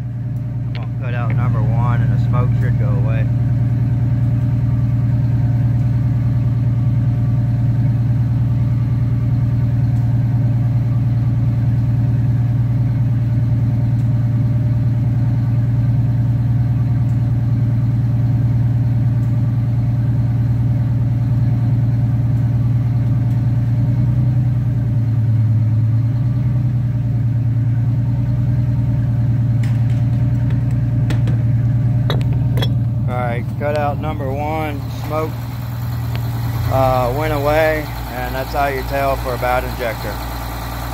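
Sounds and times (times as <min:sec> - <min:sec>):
diesel engine idling: 0:00.0 - 0:40.9.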